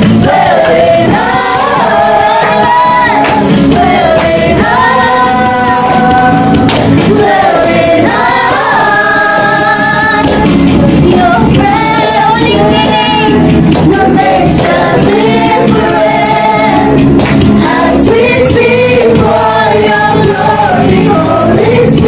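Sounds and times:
backing music: 0:00.0 - 0:22.0
group singing a worship song: 0:00.0 - 0:22.0.

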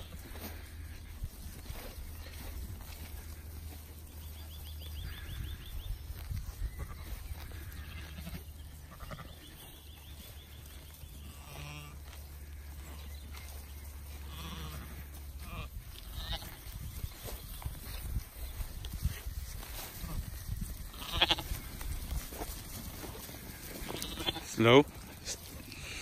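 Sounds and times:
sheep bleating: 0:06.8 - 0:09.5, 0:11.2 - 0:12.8, 0:14.1 - 0:16.6, 0:20.9 - 0:21.7, 0:23.5 - 0:24.6.

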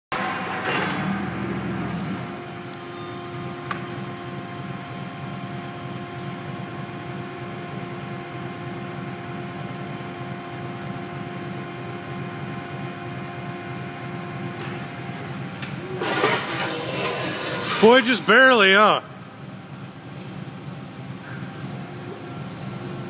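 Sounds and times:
hydraulic machine hum with whine: 0:00.1 - 0:23.0.

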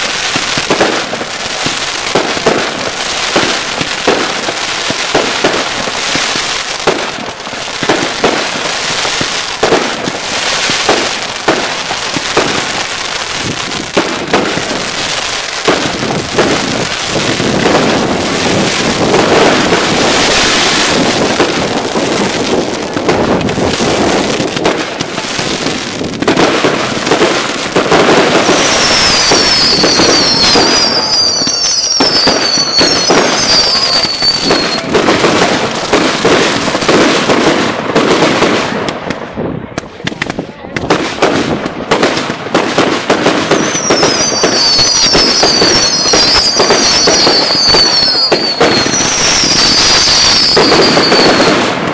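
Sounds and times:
firework bangs and crackling: 0:00.0 - 0:51.9
high falling firework whistles: 0:28.2 - 0:36.0, 0:43.2 - 0:51.8.

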